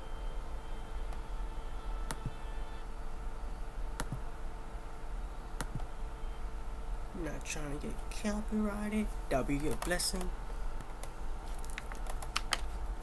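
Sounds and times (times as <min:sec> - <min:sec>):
low electrical hum: 0:00.0 - 0:13.0
computer mouse clicks: 0:04.0 - 0:04.2, 0:05.6 - 0:05.9.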